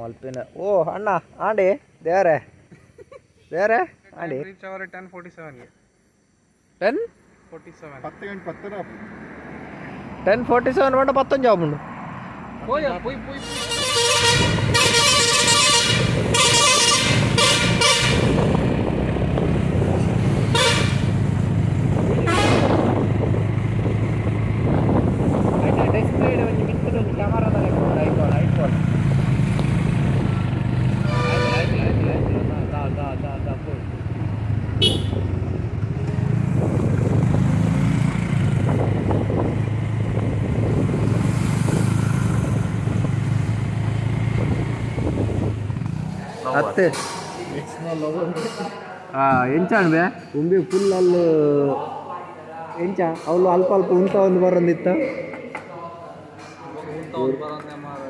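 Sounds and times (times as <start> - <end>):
engine and road rumble: 5.5 - 48.0
vehicle horn blasts: 13.4 - 18.5, 20.4 - 21.2, 22.2 - 23.0, 31.0 - 32.0, 34.8 - 35.4.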